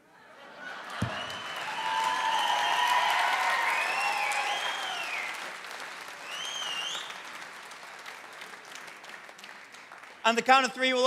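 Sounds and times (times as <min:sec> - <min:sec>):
audience applauding and cheering: 0:00.6 - 0:11.0
high whoops: 0:01.2 - 0:05.3.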